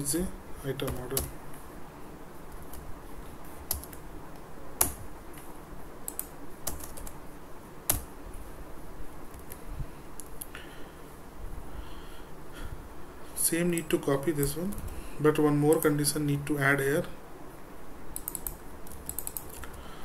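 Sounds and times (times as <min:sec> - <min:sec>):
keyboard typing clicks: 0:03.7 - 0:04.0, 0:04.8 - 0:07.2, 0:07.9 - 0:08.1, 0:18.2 - 0:19.8.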